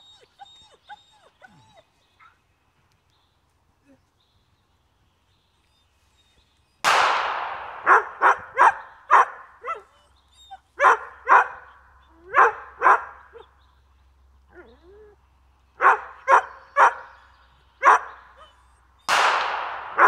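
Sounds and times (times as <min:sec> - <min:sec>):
gunshot: 0:06.8 - 0:08.3, 0:19.1 - 0:20.0
dog barking: 0:07.8 - 0:09.9, 0:10.8 - 0:11.7, 0:12.3 - 0:13.4, 0:15.8 - 0:17.1, 0:17.8 - 0:18.5.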